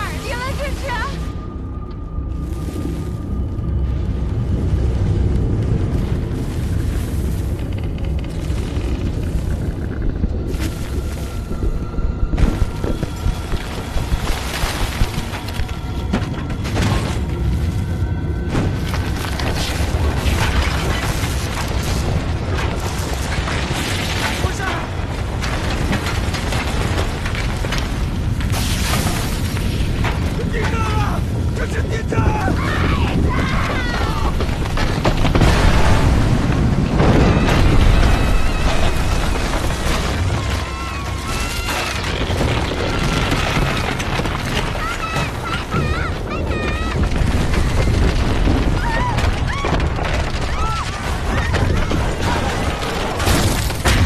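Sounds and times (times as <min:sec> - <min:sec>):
deep earthquake rumble: 0:00.0 - 0:54.0
crashes of falling debris: 0:02.3 - 0:54.0.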